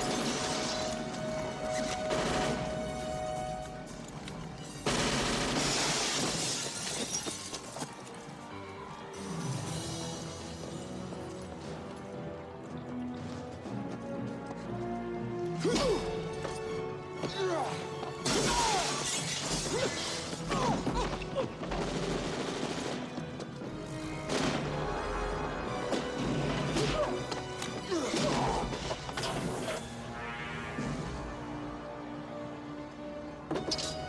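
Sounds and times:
dramatic film music: 0.0s - 34.0s
glass breaking: 5.6s - 7.6s.

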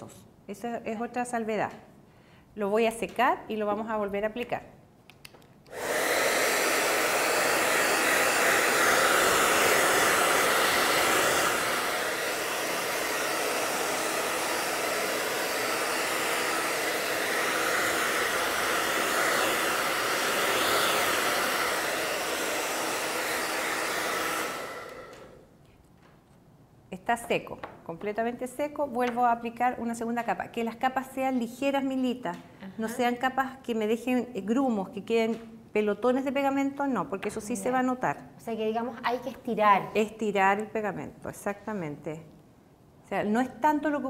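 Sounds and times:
hair dryer blowing: 5.7s - 25.5s.

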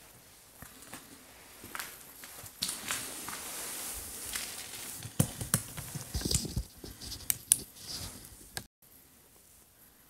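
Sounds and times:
rustling hiss: 1.1s - 5.3s.

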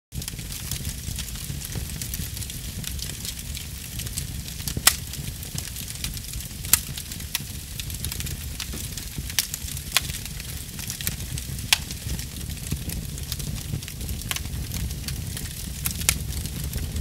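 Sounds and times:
crackling with sharp pops: 0.1s - 17.0s.

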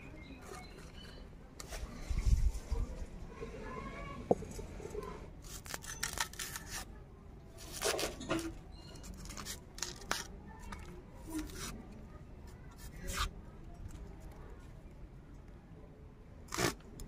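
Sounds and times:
onion skin scraped and torn: 5.4s - 12.0s, 12.7s - 14.0s, 16.4s - 17.0s.

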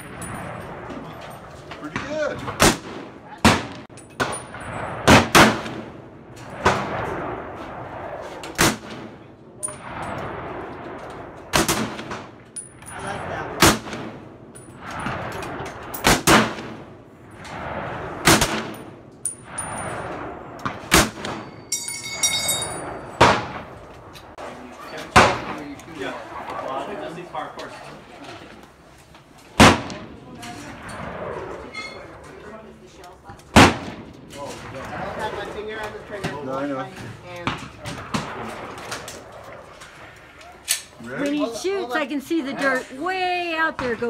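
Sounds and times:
rifle shots echoing: 0.0s - 24.5s, 25.1s - 26.7s, 29.5s - 31.7s, 33.5s - 36.0s, 37.4s - 41.0s
high metallic ringing: 21.4s - 23.2s.

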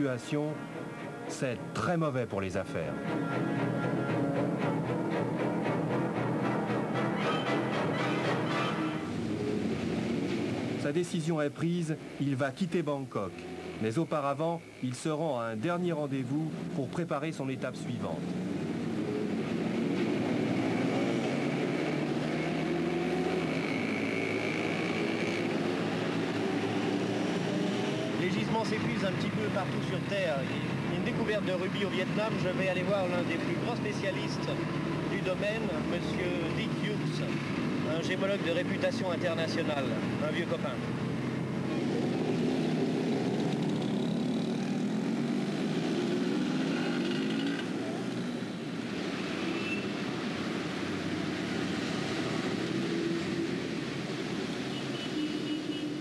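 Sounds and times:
street traffic: 0.0s - 56.0s
motor rickshaw engines running: 13.2s - 56.0s.

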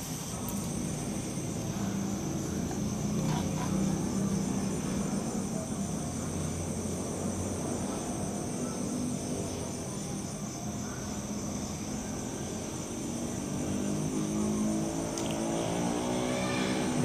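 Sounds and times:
insects chirring: 0.0s - 17.0s.

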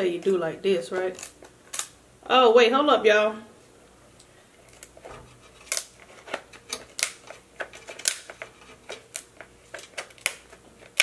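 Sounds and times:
shears cracking crab shell: 0.9s - 2.0s, 4.7s - 11.0s.

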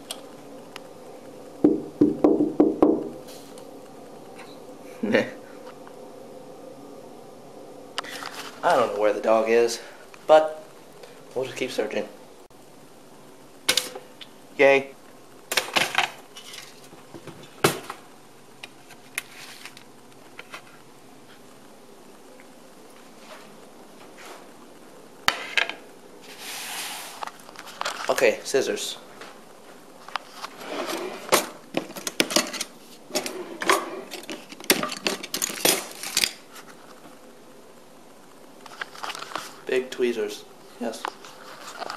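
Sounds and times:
metal items clinking in drawer: 31.2s - 36.4s.

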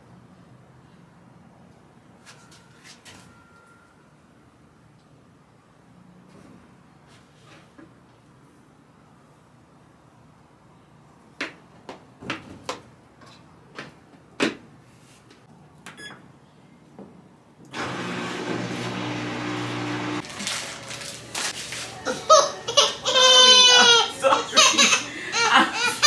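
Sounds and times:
washing machine humming and hissing: 17.7s - 26.0s.

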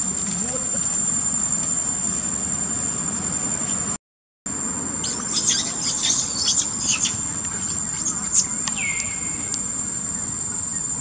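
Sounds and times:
high insect drone: 0.0s - 11.0s
monkeys squeaking and squealing: 5.0s - 7.3s, 7.9s - 9.2s.

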